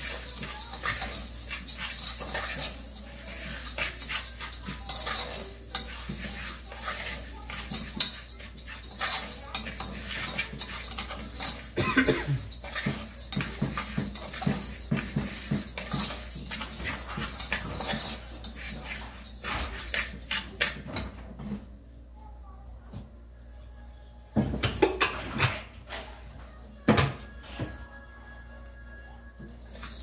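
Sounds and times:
metal spoon scraping pot: 0.0s - 21.0s.

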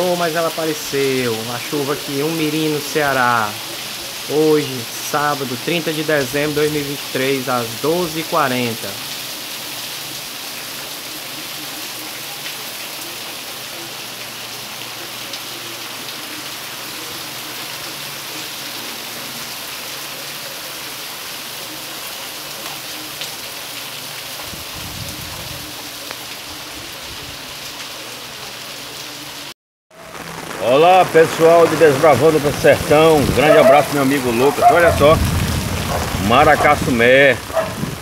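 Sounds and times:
rain on cobblestones: 0.0s - 38.0s
low rumble: 34.9s - 38.0s.

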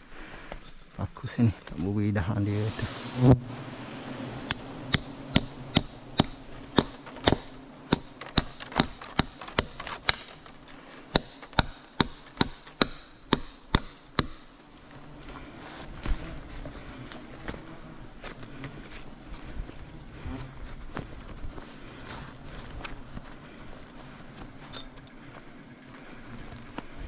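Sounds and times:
hammer striking nail into wood: 4.5s - 10.3s, 11.1s - 14.5s.

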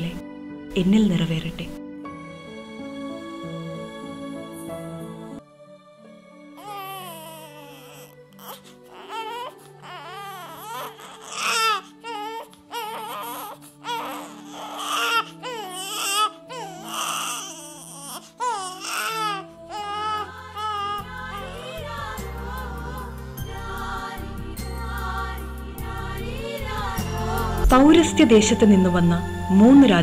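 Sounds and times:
soft background music: 0.0s - 30.0s
newborn baby crying: 6.5s - 23.3s.

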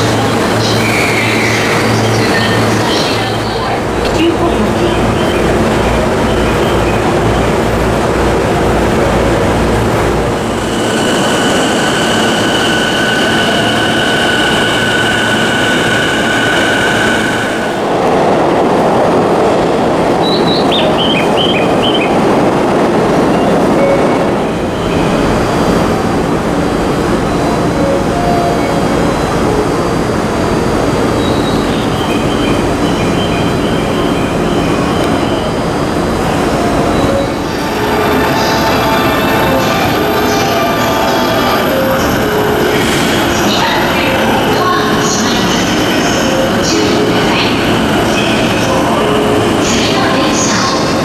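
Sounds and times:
train rumbling: 0.0s - 51.0s
train wheel squeal: 10.5s - 17.6s.

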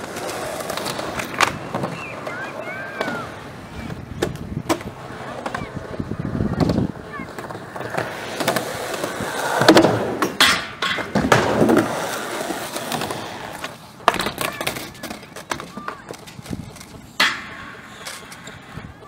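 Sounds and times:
skateboard clacking on ground: 0.0s - 19.0s
skateboard wheels rolling on concrete: 0.0s - 19.0s.

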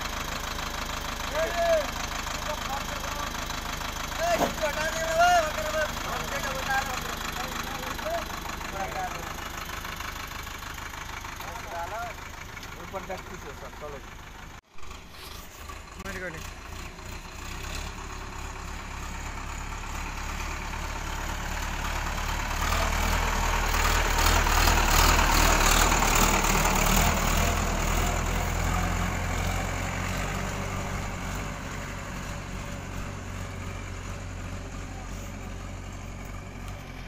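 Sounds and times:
tractor diesel engine passing: 0.0s - 37.0s.

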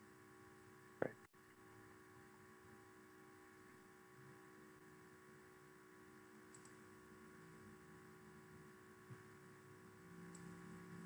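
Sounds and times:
faint electrical hum: 0.0s - 11.0s
tiny clicks: 6.5s - 6.8s.

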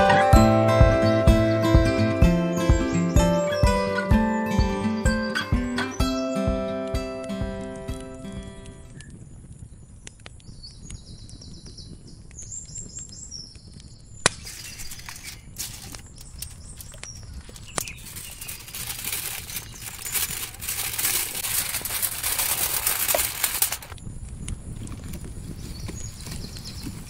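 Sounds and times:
aluminium foil crinkling: 14.3s - 24.0s
bird chirping: 14.4s - 22.4s.

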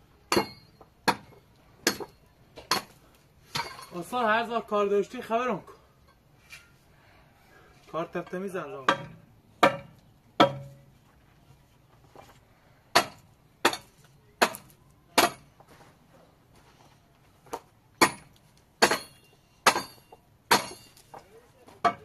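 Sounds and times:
sledgehammer striking stone: 0.3s - 3.9s, 8.9s - 10.8s, 12.9s - 15.5s, 18.0s - 21.2s, 21.8s - 22.0s.

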